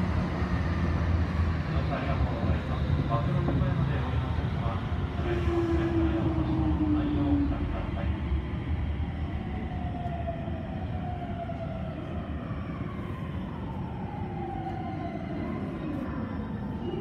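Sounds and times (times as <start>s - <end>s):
wheels rumbling on rail: 0.0s - 17.0s.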